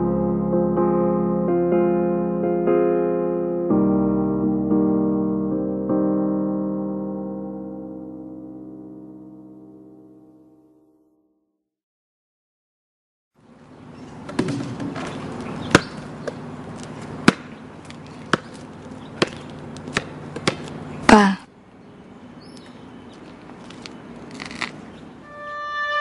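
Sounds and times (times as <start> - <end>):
basketball thumping on court: 14.3 - 16.4, 17.2 - 17.6, 18.3 - 18.6, 19.2 - 20.7.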